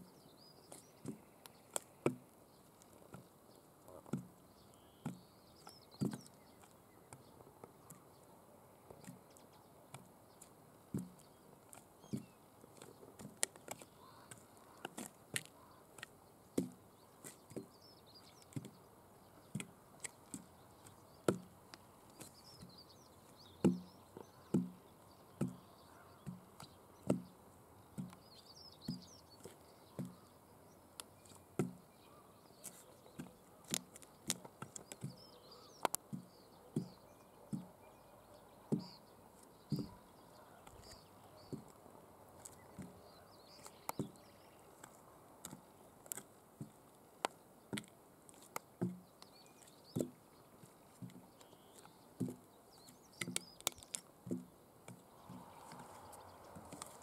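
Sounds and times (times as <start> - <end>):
faint birdsong: 0.0 - 57.0
high heels clacking on concrete: 23.6 - 27.4, 39.7 - 41.8, 43.6 - 57.0.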